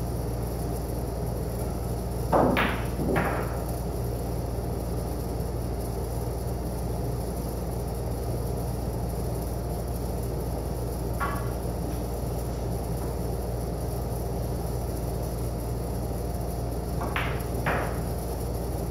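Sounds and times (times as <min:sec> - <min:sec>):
pool balls clacking: 0:02.3 - 0:03.7, 0:17.0 - 0:18.1.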